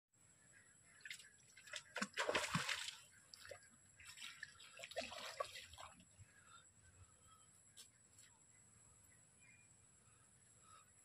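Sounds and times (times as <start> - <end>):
fish thrashing and splashing: 1.7 - 3.0.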